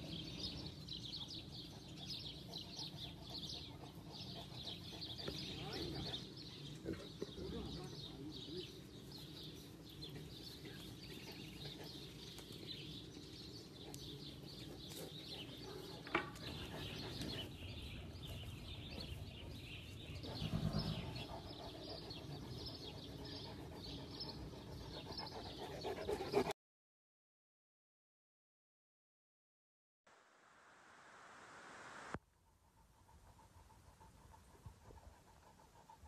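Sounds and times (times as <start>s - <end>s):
birds chirping and calling: 0.0s - 26.5s.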